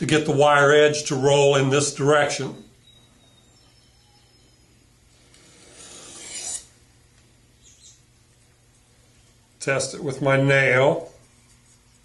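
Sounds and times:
faint short scrape: 5.4s - 6.7s
knife rasping on sharpening stone: 5.5s - 6.7s.

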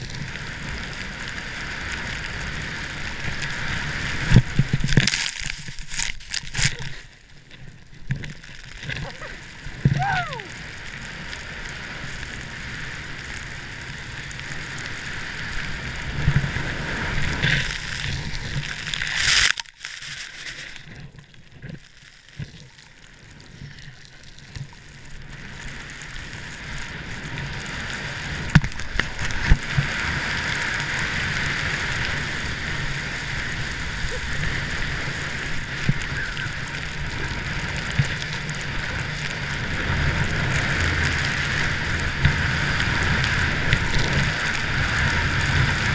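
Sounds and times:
skis hissing over snow: 0.0s - 7.5s, 8.3s - 21.1s, 21.8s - 45.9s
wind on microphone: 8.8s - 10.7s.

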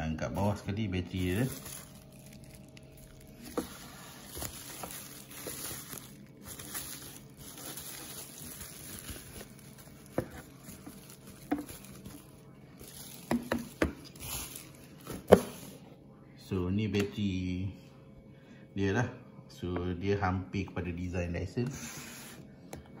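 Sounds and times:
bubble wrap rustling and crinkling: 0.2s - 15.8s.

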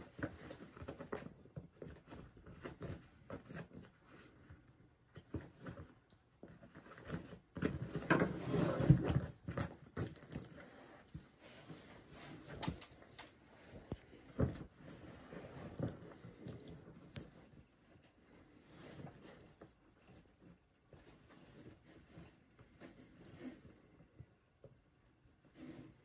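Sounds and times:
canvas bag rustling and knocking: 5.2s - 18.0s
leather straps through metal buckles: 7.9s - 11.1s, 13.7s - 17.6s, 22.8s - 23.8s.

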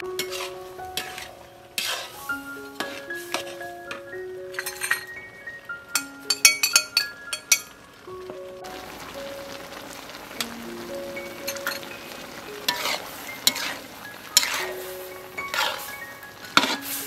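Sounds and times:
food sizzling in a wok: 0.0s - 17.0s
metal spatula scraping: 0.2s - 4.0s, 12.7s - 16.0s, 16.6s - 17.0s.

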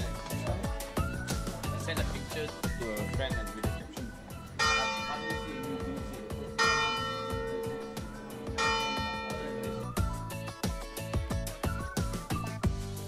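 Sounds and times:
background music with a beat: 0.0s - 13.0s
bell ringing: 4.5s - 10.0s.

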